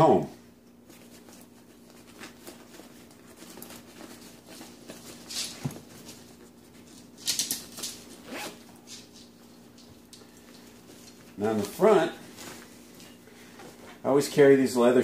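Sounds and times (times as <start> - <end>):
zipper being pulled: 8.2 - 8.6.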